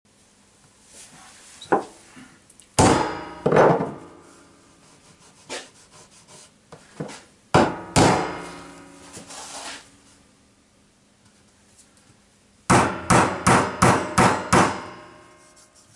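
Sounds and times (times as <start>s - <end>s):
hammer knocking on wooden boards: 2.8s - 4.0s, 7.6s - 8.5s, 12.7s - 14.9s
boards scraping: 8.4s - 9.9s.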